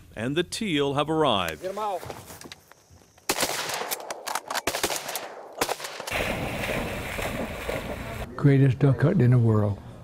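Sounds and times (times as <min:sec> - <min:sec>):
shotgun blasts: 0:03.3 - 0:08.3.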